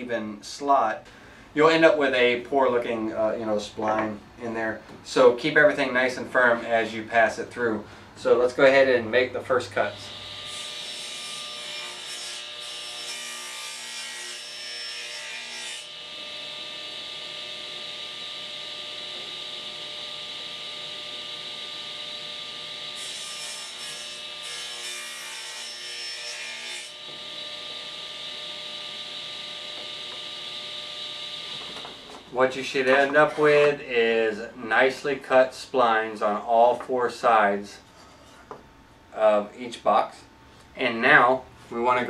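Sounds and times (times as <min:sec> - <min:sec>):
table saw running: 0:09.8 - 0:33.4.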